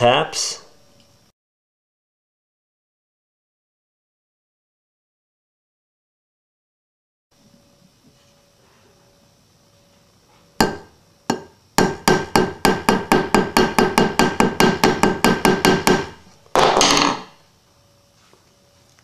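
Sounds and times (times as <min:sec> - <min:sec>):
hammer tapping metal pin: 0:10.6 - 0:16.0.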